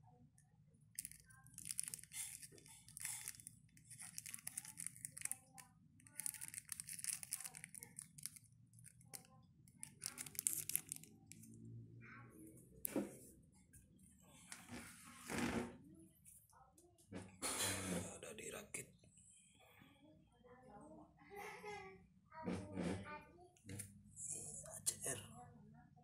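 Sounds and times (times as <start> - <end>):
plastic bag crinkling: 1.0 - 9.2, 9.8 - 11.4.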